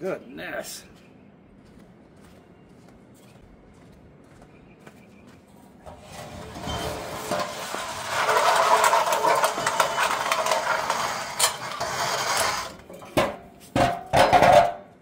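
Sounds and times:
metal exhaust scraping on concrete: 0:05.8 - 0:14.9
metal clank: 0:05.9 - 0:15.0.

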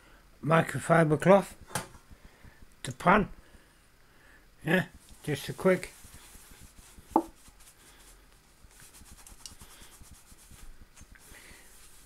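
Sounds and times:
cloth rubbing a frying pan: 0:04.9 - 0:12.0.

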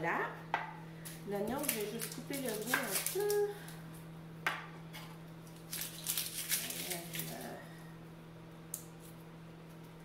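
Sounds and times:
steady low hum: 0:00.0 - 0:10.0
papery crackling of onion skin: 0:01.1 - 0:04.0, 0:05.4 - 0:07.6.

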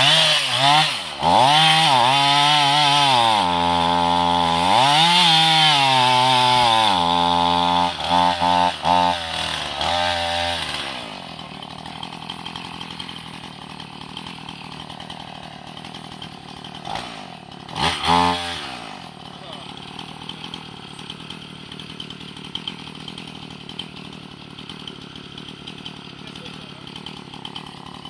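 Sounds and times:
chainsaw cutting and sputtering: 0:00.0 - 0:28.0.

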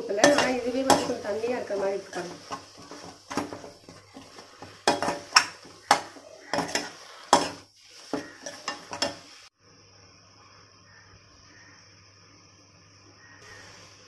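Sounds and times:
metal spoon scraping a metal pan: 0:00.0 - 0:09.4
faint steady hiss: 0:00.0 - 0:14.0.

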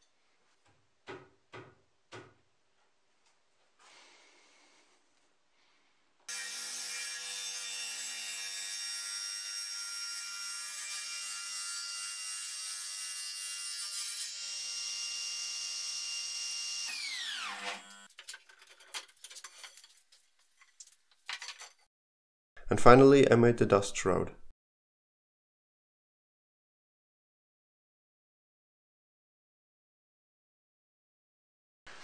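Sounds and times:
table saw whining: 0:06.3 - 0:18.1.

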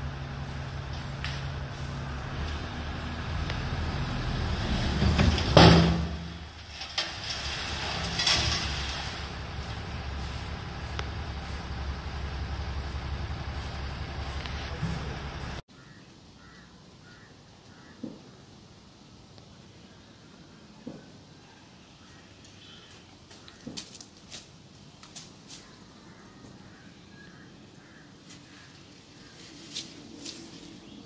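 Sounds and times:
truck engine running: 0:00.0 - 0:15.6.

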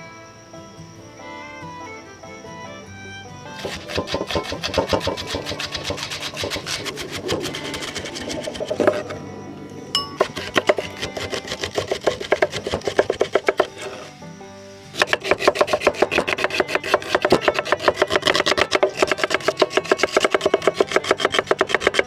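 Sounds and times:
knife chopping on wooden board: 0:03.6 - 0:09.0, 0:10.2 - 0:14.0, 0:15.0 - 0:22.0.

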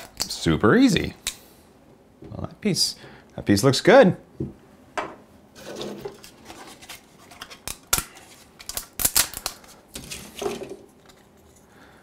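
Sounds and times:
plastic snapping and cracking: 0:07.5 - 0:10.8.

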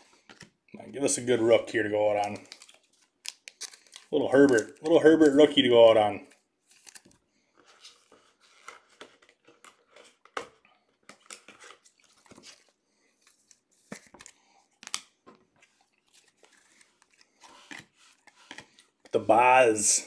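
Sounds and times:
card sleeves rustling: 0:06.6 - 0:20.0.

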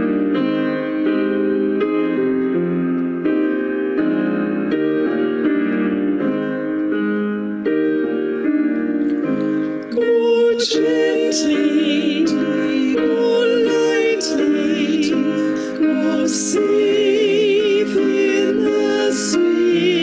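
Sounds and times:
piano playing slow chords: 0:00.0 - 0:20.0
woman singing with vibrato: 0:09.9 - 0:20.0.

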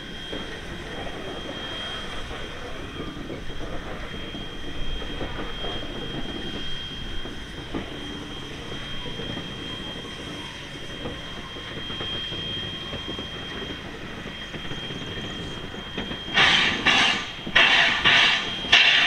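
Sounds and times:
high steady squeal: 0:00.0 - 0:19.0
steam locomotive rumbling: 0:00.0 - 0:19.0
loud steam hiss: 0:12.4 - 0:19.0.

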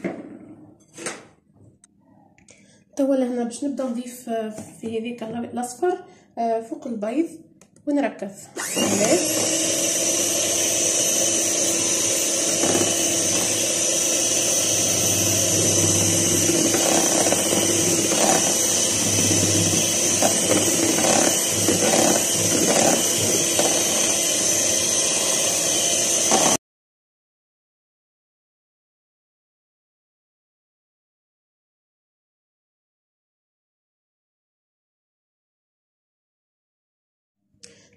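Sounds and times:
electric hand mixer whining: 0:08.6 - 0:26.6.

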